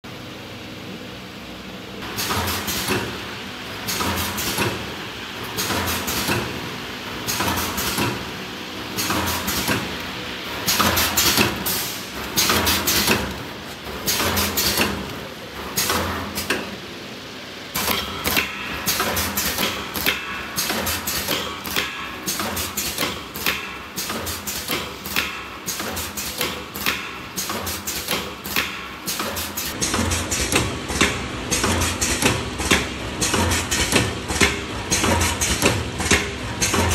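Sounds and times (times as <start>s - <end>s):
steady machine hum: 0.0s - 36.9s
packaging machine clacking: 9.0s - 16.8s.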